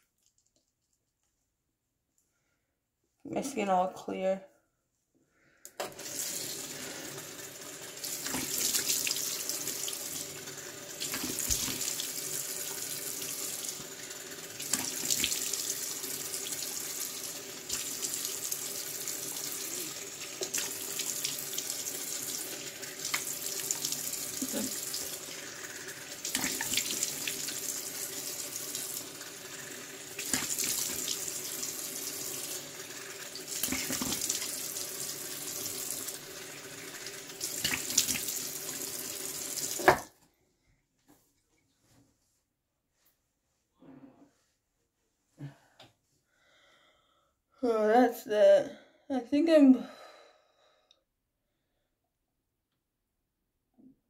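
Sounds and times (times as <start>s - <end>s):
tap running into a sink: 11.0s - 12.0s, 33.6s - 34.5s, 39.5s - 40.1s
water splashing: 26.2s - 27.7s, 30.2s - 31.3s, 33.4s - 34.6s, 37.5s - 38.8s.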